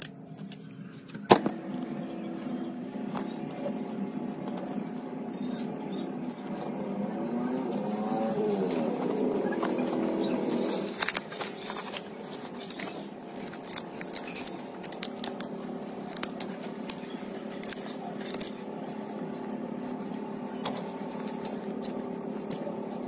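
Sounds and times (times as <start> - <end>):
steady hum: 0.0 - 23.0
scissors snipping paper: 10.8 - 18.6.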